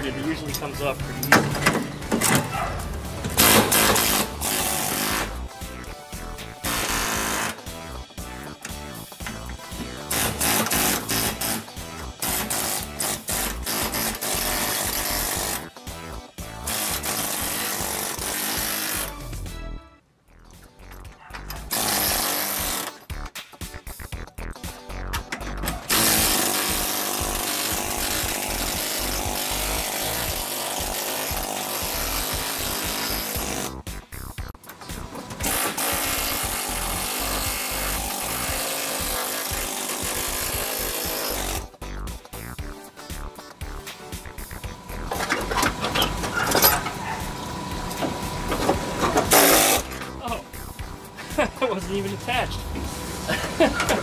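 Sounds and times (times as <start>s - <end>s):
air chisel cutting sheet steel: 3.4s - 5.4s, 6.6s - 7.6s, 10.1s - 15.7s, 21.7s - 23.0s, 25.9s - 33.8s, 35.4s - 41.6s, 49.2s - 50.0s
air chisel hammering sheet steel: 10.1s - 15.6s.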